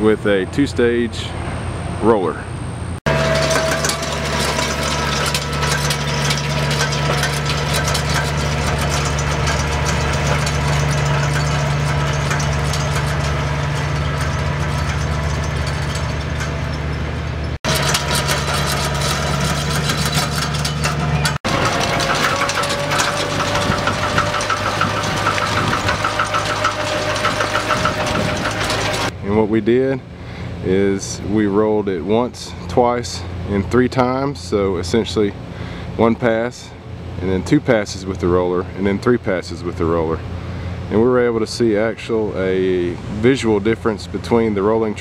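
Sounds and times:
tractor engine running: 0:03.0 - 0:29.3
fast rattle: 0:03.1 - 0:29.2.

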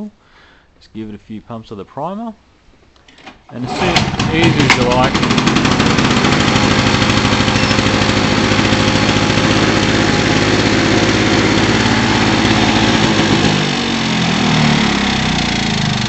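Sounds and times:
lawn mower engine running: 0:03.6 - 0:16.0.

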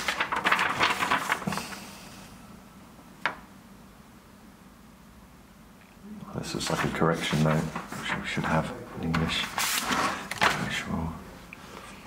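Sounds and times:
paper rustling and crinkling: 0:00.0 - 0:01.8, 0:06.6 - 0:10.8.

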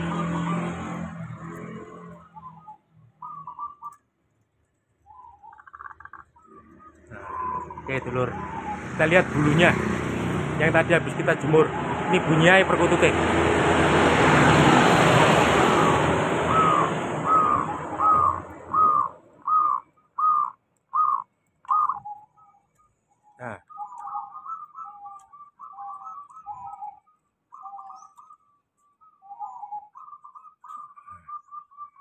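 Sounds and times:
passing vehicle road noise: 0:00.0 - 0:02.7, 0:06.6 - 0:19.8
dove singing and cooing: 0:00.0 - 0:04.0, 0:05.0 - 0:13.8, 0:14.4 - 0:32.0.

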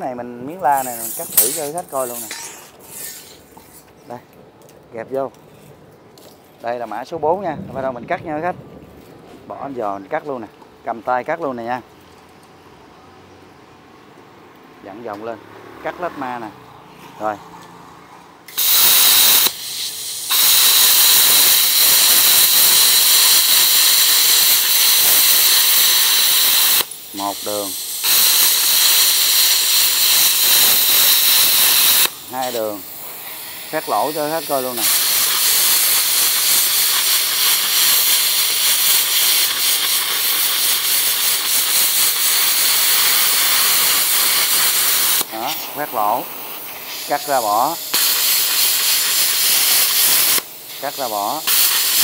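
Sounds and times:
plasma cutter hissing and whining: 0:00.5 - 0:03.8, 0:18.5 - 0:52.0.

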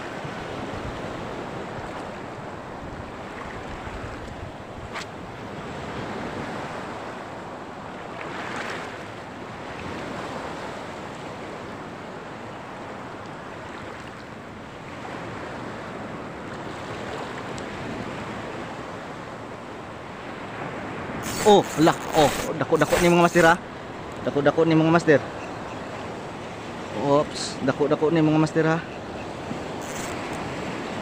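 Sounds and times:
sea water washing: 0:20.6 - 0:24.2.

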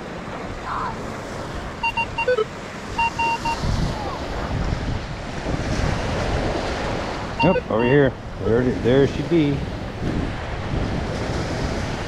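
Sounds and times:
metal detector short high beeps: 0:01.8 - 0:03.7, 0:07.4 - 0:08.1
metal detector lower blip: 0:03.0 - 0:03.6.

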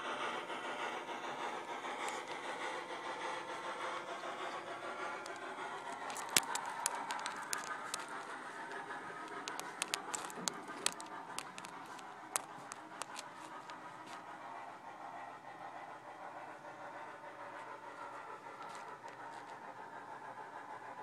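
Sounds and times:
steam locomotive hiss: 0:00.0 - 0:21.0
sharp clicks and scratches: 0:01.4 - 0:14.5, 0:18.1 - 0:19.6.

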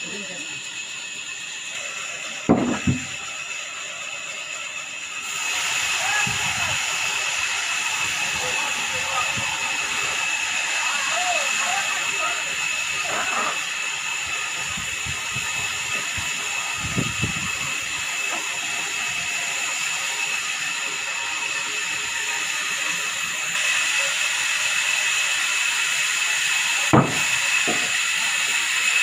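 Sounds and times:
band saw whining: 0:00.0 - 0:29.0
heavy planks knocking: 0:02.5 - 0:03.2, 0:27.0 - 0:27.9.

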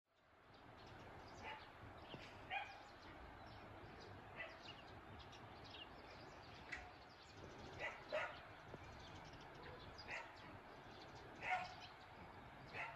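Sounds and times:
small birds chirping: 0:00.1 - 0:12.9
dog barking: 0:01.4 - 0:01.7, 0:02.5 - 0:02.9, 0:04.4 - 0:04.7, 0:07.8 - 0:08.4, 0:09.6 - 0:10.4, 0:11.4 - 0:11.9, 0:12.7 - 0:12.9.

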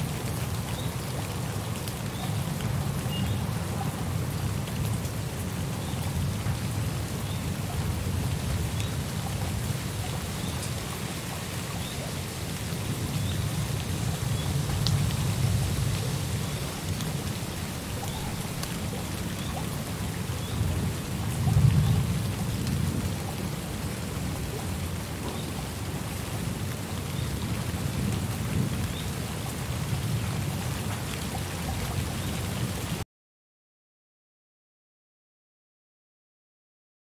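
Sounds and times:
steady rain: 0:00.0 - 0:33.0
low rolling thunder: 0:12.8 - 0:24.4.

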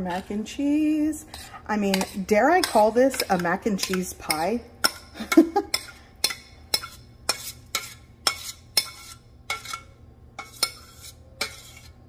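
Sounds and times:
metal spoon scraping a pot: 0:00.0 - 0:12.0
spoon clinking against cookware: 0:01.3 - 0:11.8.

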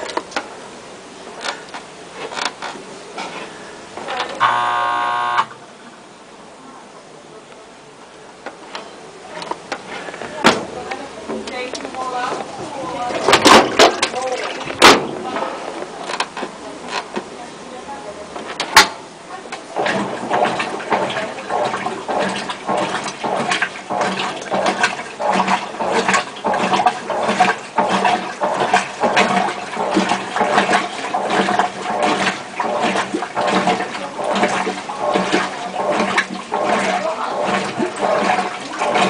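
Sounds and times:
washing machine water sloshing: 0:00.0 - 0:05.4, 0:08.4 - 0:39.0
motor hum: 0:04.0 - 0:05.7.

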